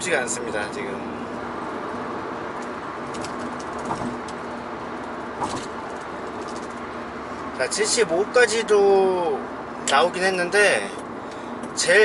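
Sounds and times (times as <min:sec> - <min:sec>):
constant low hum: 0:00.0 - 0:08.4, 0:09.3 - 0:12.0
car cabin road and wind noise: 0:00.0 - 0:12.0.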